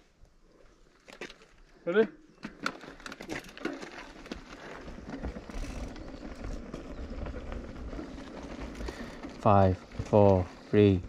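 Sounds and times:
bike tires crunching on gravel: 0:02.4 - 0:11.0
wind rumbling on microphone: 0:04.8 - 0:11.0.

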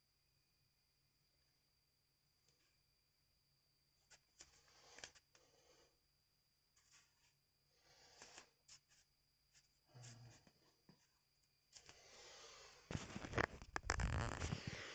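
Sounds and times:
bare feet rustling and clicking: 0:12.9 - 0:14.9.

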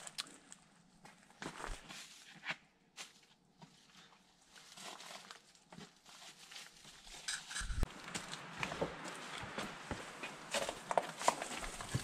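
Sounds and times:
footsteps on rock: 0:07.7 - 0:12.0.

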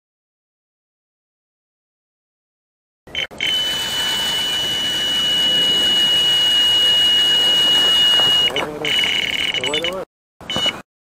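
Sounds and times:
electronic alarm high tone: 0:03.1 - 0:10.8.

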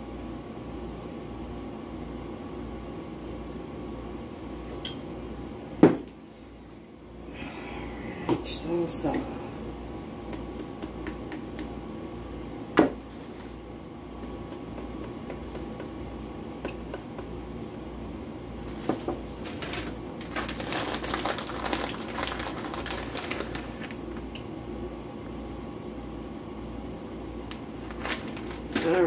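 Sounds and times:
steady low hum: 0:00.0 - 0:29.0
plastic bag crinkling: 0:18.6 - 0:24.0, 0:27.5 - 0:29.0.

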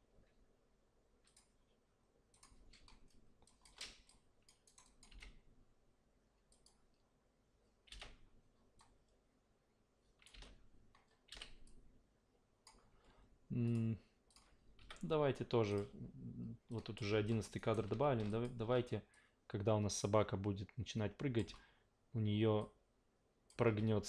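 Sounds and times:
mouse and keyboard clicks: 0:02.3 - 0:05.4.

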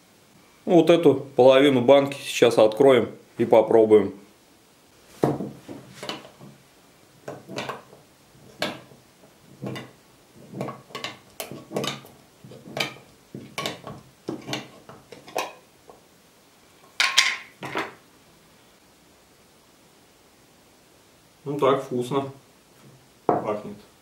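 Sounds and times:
can opener scraping metal: 0:09.5 - 0:15.6.

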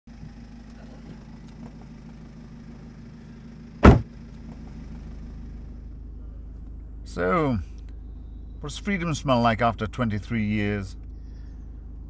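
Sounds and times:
low hum inside car: 0:00.1 - 0:12.0
car door shutting: 0:03.8 - 0:04.1.

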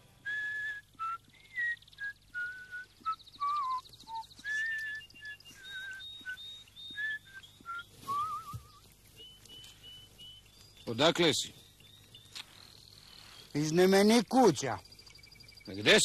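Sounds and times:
person whistling: 0:00.3 - 0:08.8.

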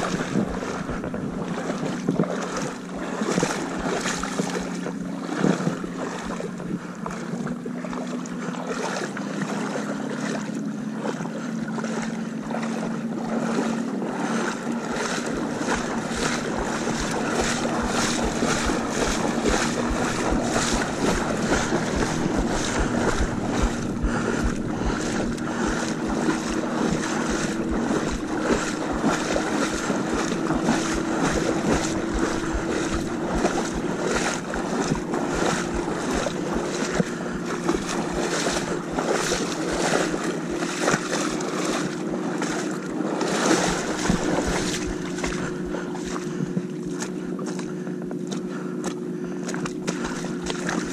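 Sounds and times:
wind buffeting microphone: 0:00.0 - 0:07.6, 0:14.6 - 0:42.4, 0:43.3 - 0:46.7
boat motor running: 0:00.0 - 0:50.9
water rushing past hull: 0:00.0 - 0:50.9.

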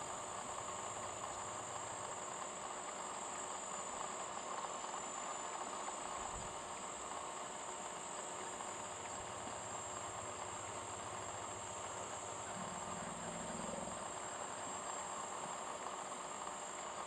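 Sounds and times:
low hiss: 0:00.0 - 0:17.0
insect chorus buzzing: 0:08.4 - 0:16.8.

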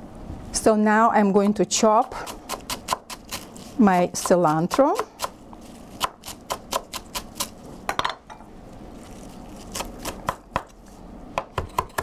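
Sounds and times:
knife chopping on wooden board: 0:02.0 - 0:03.4, 0:06.0 - 0:07.6, 0:09.7 - 0:10.8, 0:11.4 - 0:12.0.

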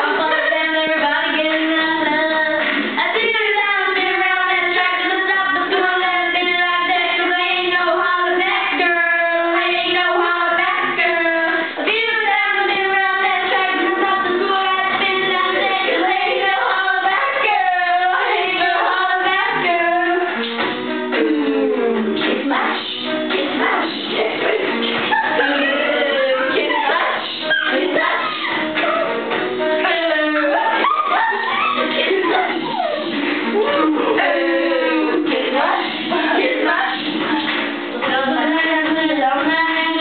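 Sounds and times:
girls singing: 0:00.0 - 0:40.0.

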